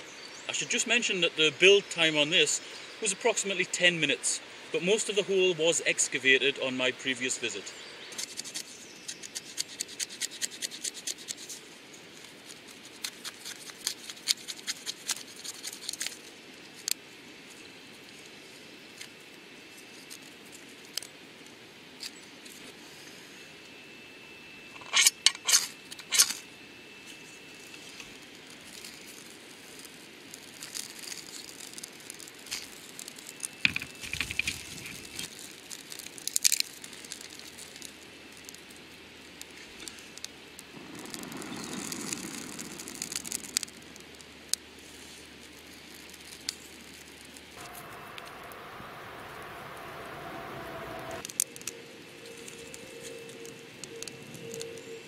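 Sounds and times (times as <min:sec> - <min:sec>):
twigs crackling and snapping: 0:08.1 - 0:18.3, 0:18.9 - 0:22.7, 0:27.6 - 0:49.5, 0:51.1 - 0:54.9.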